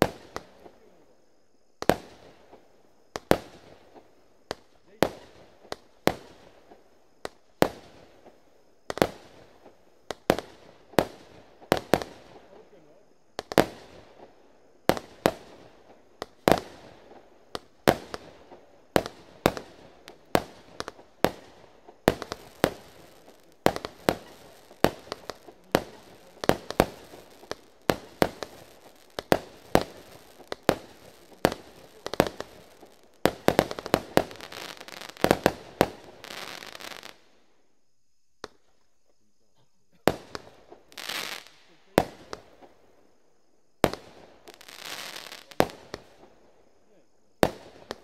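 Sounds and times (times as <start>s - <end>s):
firework bangs: 1.8s - 37.2s, 43.8s - 46.4s
firework crackle: 1.8s - 37.4s, 38.4s - 38.8s, 40.0s - 42.9s, 43.7s - 46.4s, 47.3s - 48.0s.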